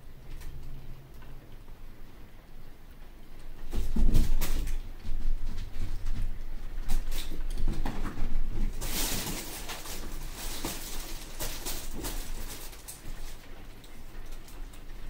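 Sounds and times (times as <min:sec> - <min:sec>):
fabric tunnel rustling and crackling: 0:03.6 - 0:15.0.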